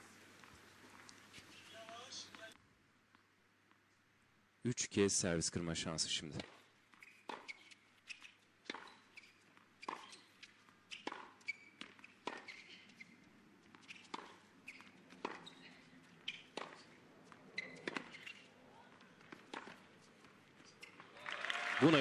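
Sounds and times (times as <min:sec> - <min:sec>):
tennis racket strikes: 0:06.4 - 0:12.7, 0:13.7 - 0:15.7, 0:16.3 - 0:18.5
tennis ball bounces: 0:06.4 - 0:21.1.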